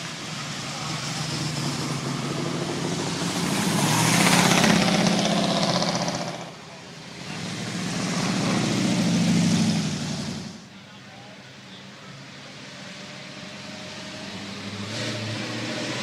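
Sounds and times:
car engine driving past: 0.0s - 10.6s
second car engine approaching: 0.0s - 16.0s.

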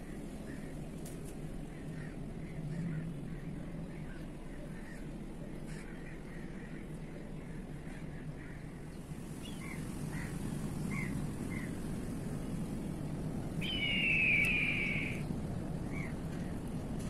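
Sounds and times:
bird chirps: 13.6s - 15.3s
long loud bird call: 13.6s - 15.3s.

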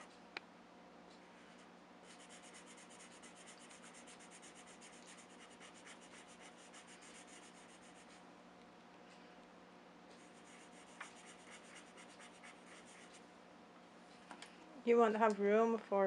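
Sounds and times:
marker scribbling on paper: 2.1s - 8.2s, 10.2s - 13.2s.

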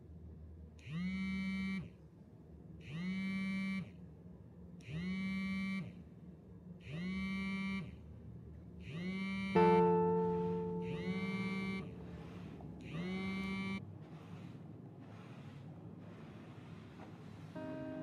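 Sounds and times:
plucked guitar music: 9.5s - 12.2s, 17.6s - 18.0s.

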